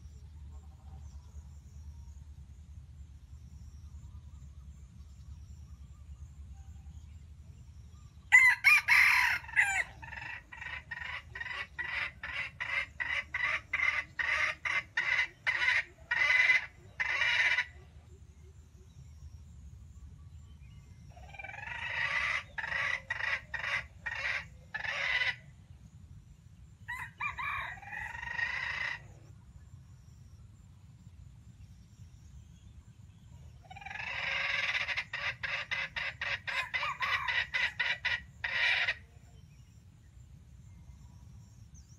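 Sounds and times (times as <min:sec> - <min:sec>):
rooster crowing: 0:08.3 - 0:11.0, 0:26.9 - 0:29.0, 0:36.5 - 0:37.8
rooster clucking: 0:08.7 - 0:17.8, 0:21.3 - 0:25.4, 0:33.7 - 0:39.1.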